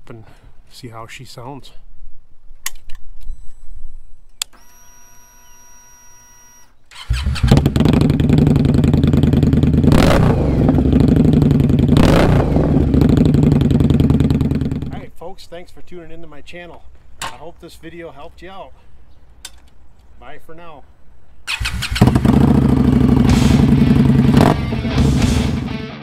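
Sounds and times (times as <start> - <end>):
motorcycle engine idling: 7.5 - 15.0, 21.6 - 25.4
fuel pump whine: 21.6 - 25.7.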